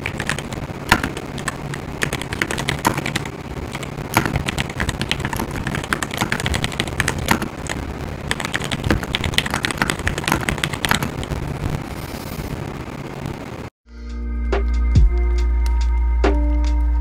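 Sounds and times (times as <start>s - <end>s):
mechanical keyboard typing: 0.0s - 11.2s.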